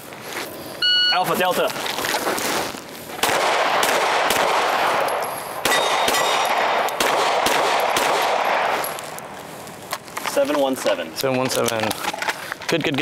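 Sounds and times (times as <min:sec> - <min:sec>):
pistol shots ringing: 0:03.2 - 0:09.4
steel target ringing: 0:05.0 - 0:06.7.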